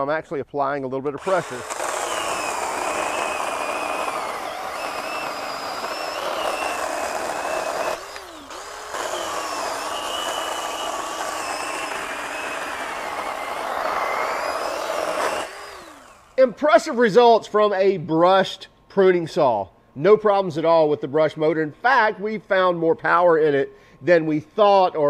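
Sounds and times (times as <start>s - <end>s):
chainsaw cutting through wood: 1.2s - 16.4s.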